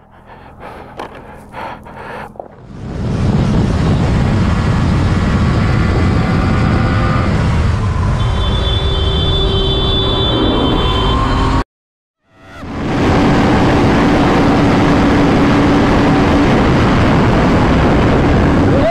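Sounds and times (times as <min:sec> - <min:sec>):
wind rush on microphone: 0:00.6 - 0:08.3, 0:12.6 - 0:18.9.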